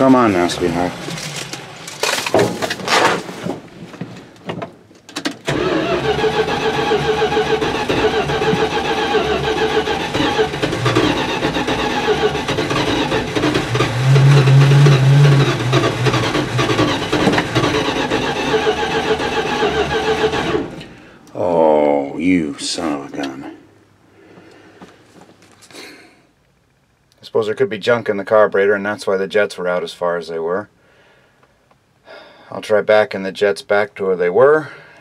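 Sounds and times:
engine cranking and running: 5.4 - 21.4.

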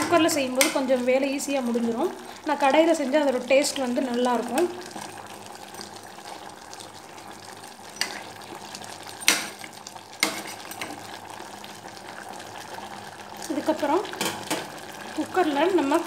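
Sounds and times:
faint simmering sizzle: 0.0 - 16.0.

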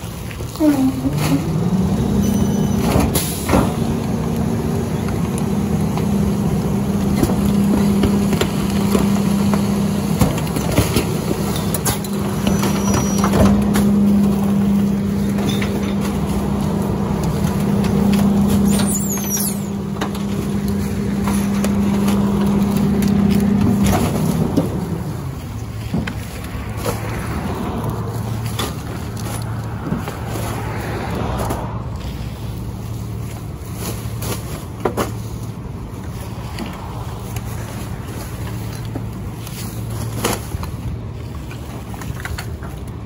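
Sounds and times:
garbage truck engine revving: 0.0 - 43.0
trash cracking and crunching: 0.0 - 43.0
metallic squeal: 2.1 - 3.0, 12.4 - 13.6, 18.6 - 19.8.

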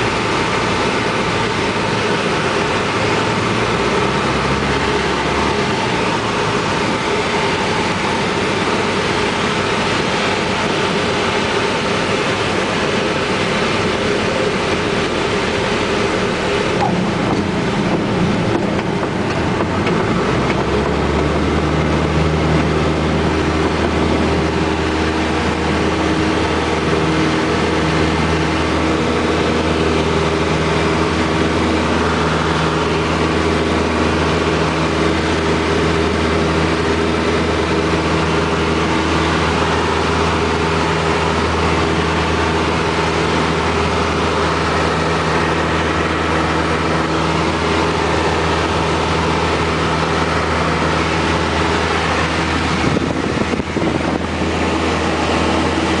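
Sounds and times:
aircraft engine and propeller: 0.0 - 56.0.

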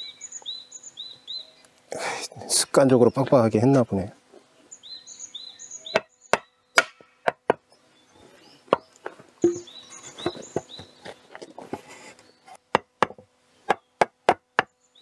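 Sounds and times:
birds chirping: 0.0 - 11.4, 12.0 - 12.6, 14.6 - 15.0
hammer striking timber: 5.9 - 7.6, 9.4 - 9.7, 12.7 - 14.7.

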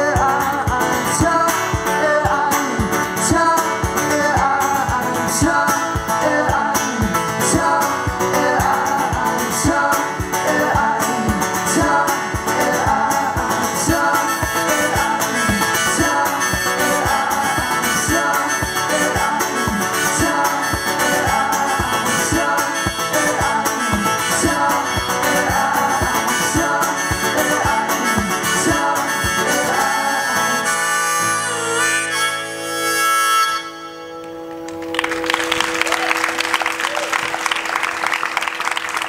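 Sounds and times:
strummed acoustic guitar: 0.0 - 33.7
harmonica solo: 13.7 - 34.7.

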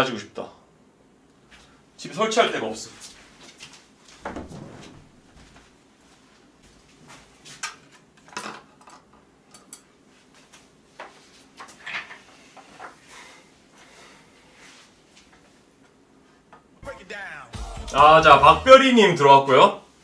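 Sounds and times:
soft thump: 4.2 - 5.3.

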